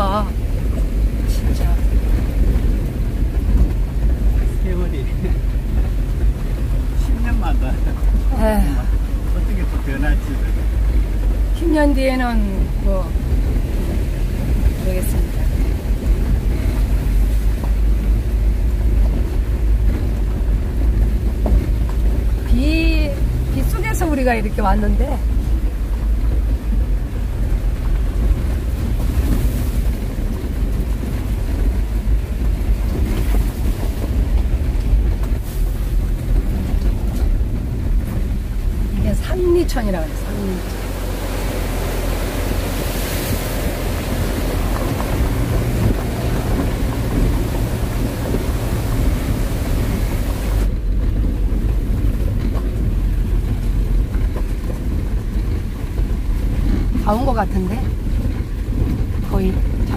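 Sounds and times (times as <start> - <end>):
car interior driving rumble: 0.0 - 59.9.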